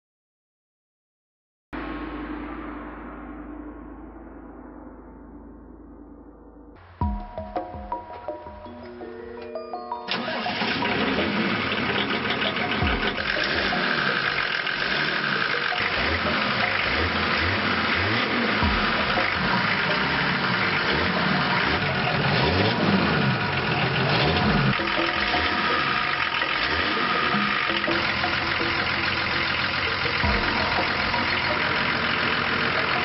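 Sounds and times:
truck engine revving: 10.1 - 33.0.

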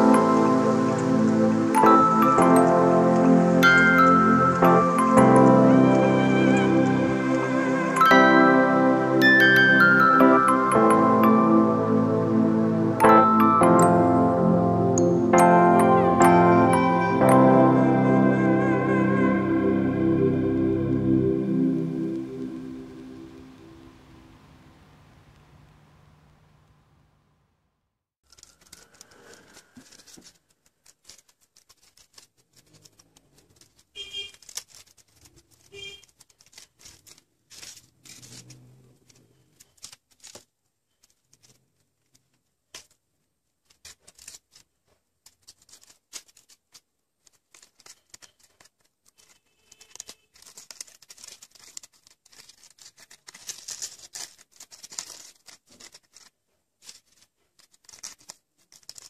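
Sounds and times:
crepe paper crinkling: 28.2 - 59.0.

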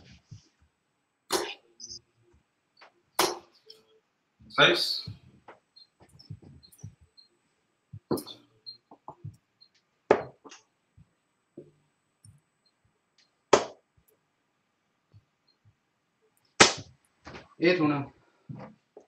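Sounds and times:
darts striking dartboard: 1.3 - 1.6, 3.2 - 3.5.

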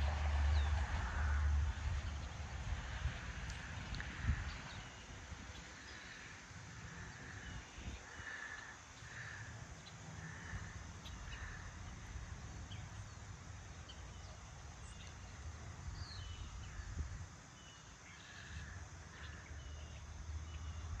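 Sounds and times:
crows cawing: 5.9 - 9.6, 10.2 - 11.8.

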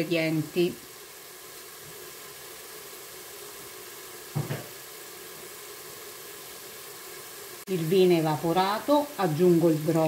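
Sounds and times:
food sizzling in a pot: 0.0 - 10.0.

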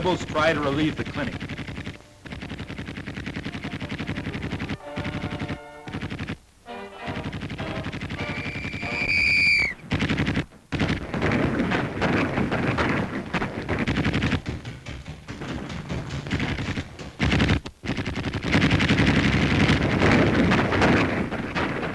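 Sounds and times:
machine-gun fire: 0.0 - 21.9
high whistling tone: 8.2 - 9.8.

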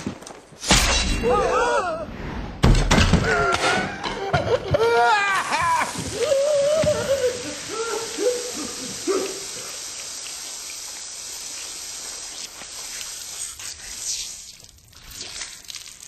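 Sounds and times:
hissing spray of blood: 5.4 - 16.0.

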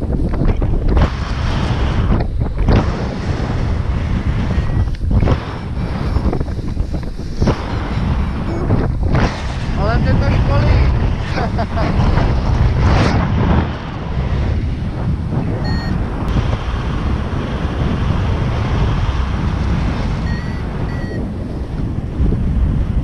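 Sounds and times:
wind buffeting microphone: 0.0 - 23.0
short high beeps: 15.6 - 16.0, 20.3 - 21.2.

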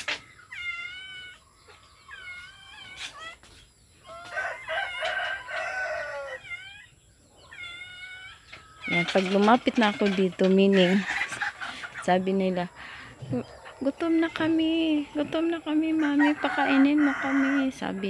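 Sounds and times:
chickens calling: 0.0 - 18.0
rooster crowing: 4.0 - 6.7, 15.8 - 18.0.

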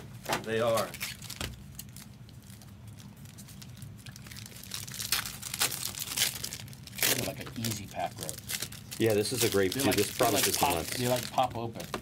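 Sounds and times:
foil wrappers crinkling: 0.5 - 12.0.

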